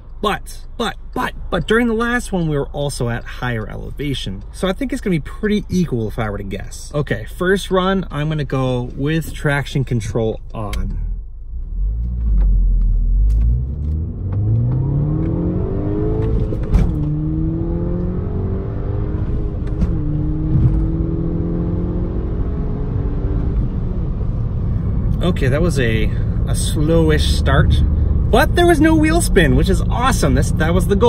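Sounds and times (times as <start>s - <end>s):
car engine accelerating hard: 11.5s - 31.0s.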